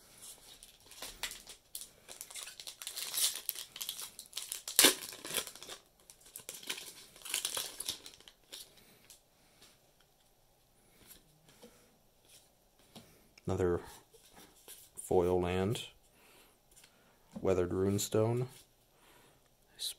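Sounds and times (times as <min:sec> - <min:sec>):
foil wrapper crinkling: 0:00.5 - 0:08.7
foil wrapper tearing: 0:00.6 - 0:08.7.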